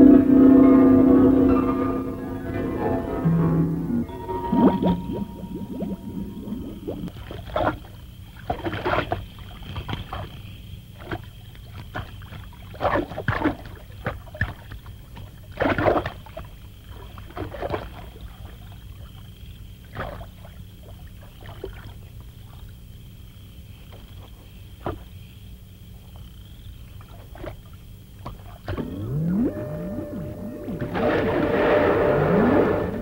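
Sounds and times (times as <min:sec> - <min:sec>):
steady low rumble: 0:00.0 - 0:07.2
water splashing: 0:00.0 - 0:22.8, 0:26.9 - 0:33.0.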